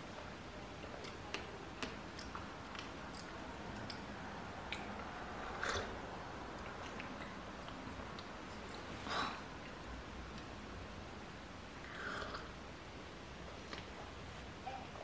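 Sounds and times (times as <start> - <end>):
sipping and chewing mouth sounds: 1.0 - 9.0.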